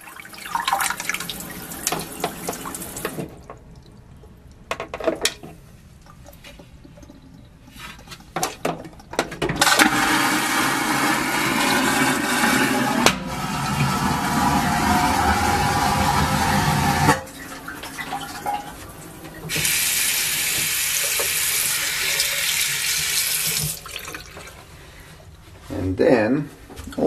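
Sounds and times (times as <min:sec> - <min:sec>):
vacuum toilet flush whoosh: 0:09.6 - 0:22.5.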